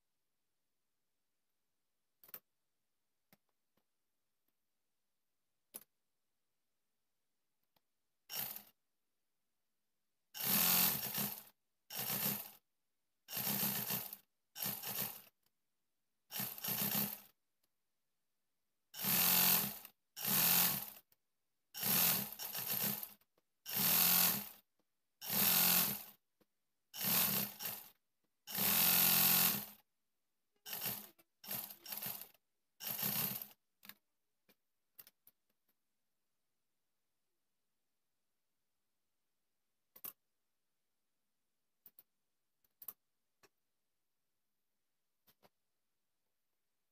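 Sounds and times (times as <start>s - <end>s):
sewing machine stitching: 8.3s - 8.8s, 10.4s - 12.6s, 13.3s - 15.4s, 16.3s - 17.4s, 18.9s - 21.1s, 21.7s - 26.2s, 26.9s - 29.9s, 30.6s - 34.0s.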